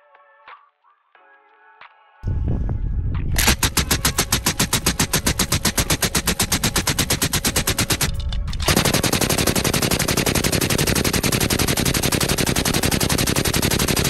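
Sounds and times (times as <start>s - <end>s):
suppressed machine gun firing: 3.4s - 14.0s.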